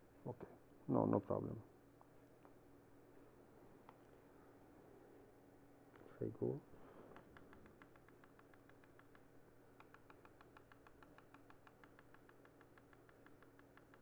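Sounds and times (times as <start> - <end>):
rapid computer clicking: 7.1 - 14.0.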